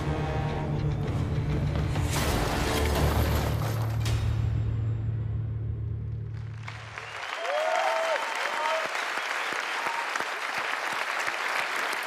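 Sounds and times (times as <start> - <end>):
audience applauding: 6.3 - 12.0.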